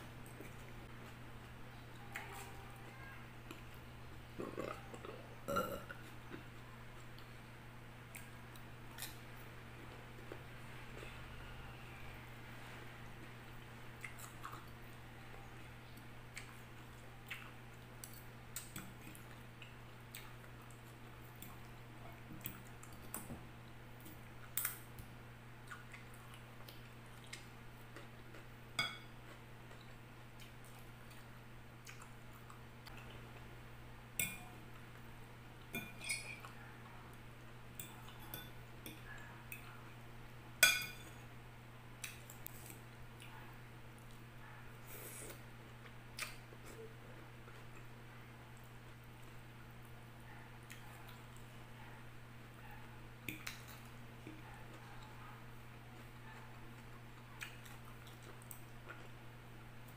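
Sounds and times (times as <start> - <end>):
fork clinking against glass bowl: 40.6 - 41.1.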